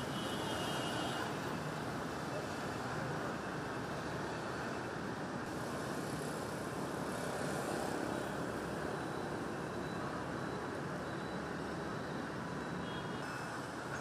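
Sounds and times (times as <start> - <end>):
cars: 0.0 - 14.0
motorbikes: 0.9 - 14.0.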